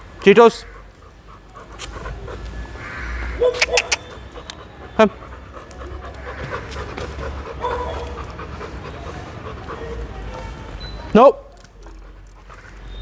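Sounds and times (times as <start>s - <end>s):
dog panting: 0.0s - 13.0s
sharp clicks: 3.5s - 4.6s.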